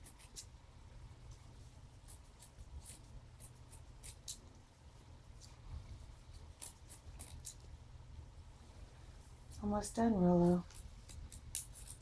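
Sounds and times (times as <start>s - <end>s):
scissors snipping fabric: 0.0s - 0.5s, 6.6s - 7.7s, 10.7s - 12.0s.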